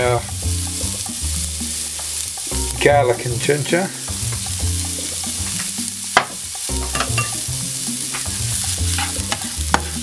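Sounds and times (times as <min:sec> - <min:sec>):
garlic sizzling in oil: 0:00.0 - 0:10.0
music with steady bass line: 0:00.0 - 0:10.0
spatula scraping a pan: 0:06.8 - 0:10.0.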